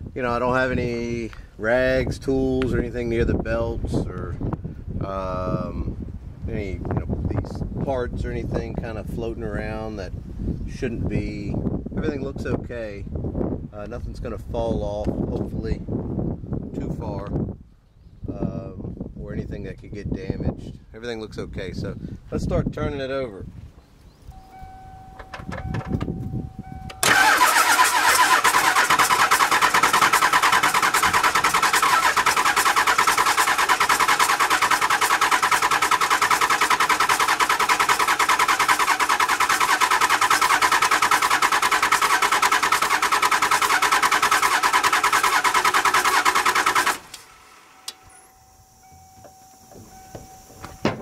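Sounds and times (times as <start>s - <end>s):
starter cranking diesel engine: 27.0s - 47.7s.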